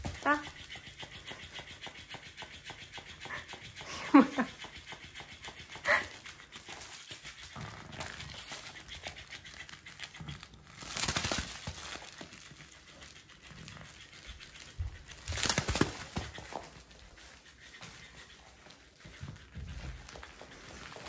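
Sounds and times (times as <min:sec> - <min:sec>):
crinkling: 0:05.8 - 0:21.0
dog rustling and scuffling: 0:06.2 - 0:21.0.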